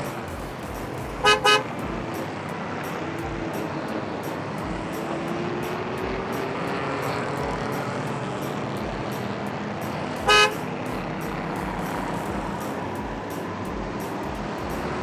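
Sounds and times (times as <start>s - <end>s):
car horn toot: 1.2s - 1.8s, 10.2s - 10.7s.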